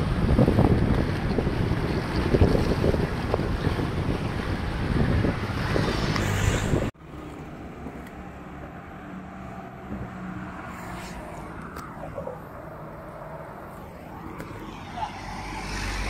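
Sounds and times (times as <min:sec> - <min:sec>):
wind buffeting microphone: 0:00.0 - 0:07.0
road-side noise: 0:00.0 - 0:16.0.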